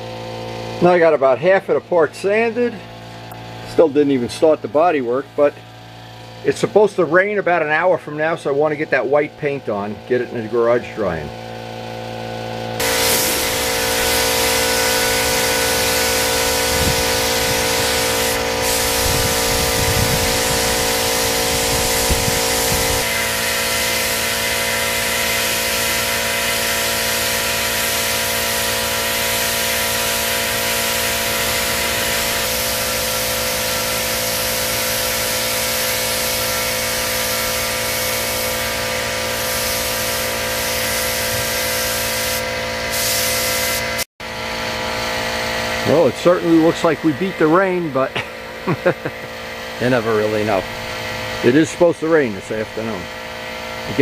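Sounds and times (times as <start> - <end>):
steady hum: 0.0 - 54.0
paint spray gun hissing: 12.8 - 54.0.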